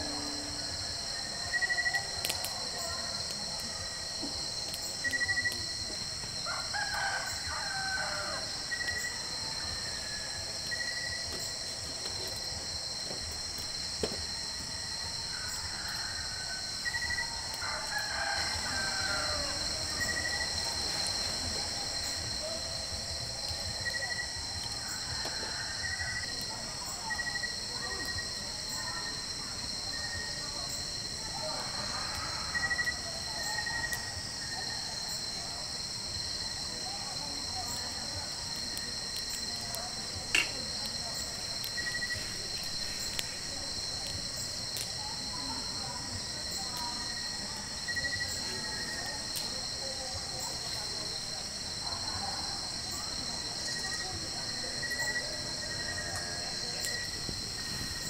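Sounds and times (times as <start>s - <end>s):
high-pitched insect drone: 0.0s - 58.0s
roosters crowing: 6.4s - 10.7s, 15.2s - 21.3s.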